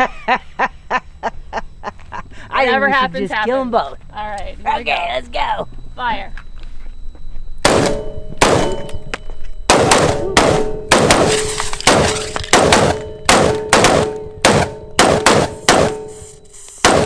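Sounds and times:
metallic ringing: 0:02.8 - 0:16.7
rifle shots: 0:07.6 - 0:08.9, 0:09.7 - 0:16.1.

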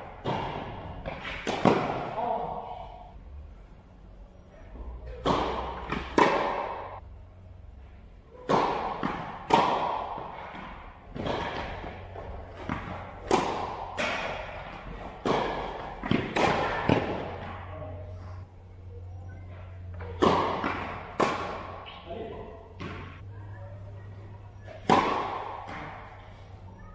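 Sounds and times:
tennis ball struck by rackets: 0:00.2 - 0:02.2, 0:05.1 - 0:07.0, 0:08.4 - 0:17.6, 0:20.0 - 0:22.0, 0:22.7 - 0:23.2, 0:24.7 - 0:26.3
tennis ball bouncing on court: 0:05.1 - 0:07.0, 0:08.5 - 0:17.6, 0:19.9 - 0:23.2, 0:24.7 - 0:26.2.

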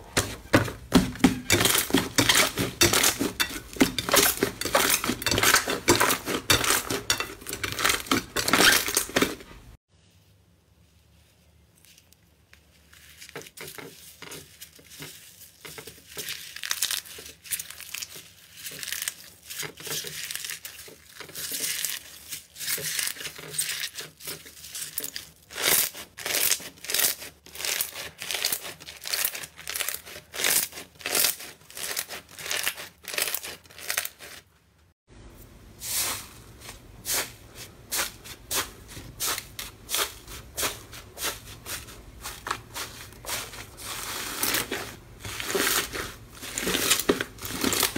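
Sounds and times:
foam bead slime crackling: 0:11.7 - 0:34.4, 0:35.8 - 0:47.9
slime squishing: 0:11.8 - 0:34.4, 0:35.8 - 0:47.9.

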